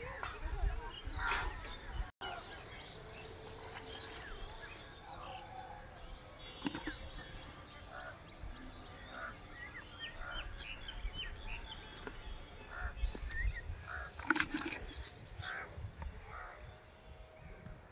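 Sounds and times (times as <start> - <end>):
small birds chirping: 0.0 - 17.9
wind rumble on microphone: 0.0 - 17.9.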